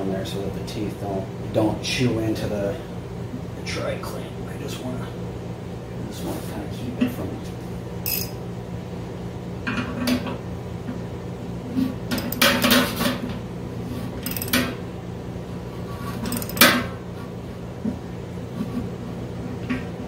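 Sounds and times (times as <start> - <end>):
metal tools clanking and scraping: 8.1 - 8.4, 12.1 - 12.9, 14.2 - 14.7, 16.2 - 16.9.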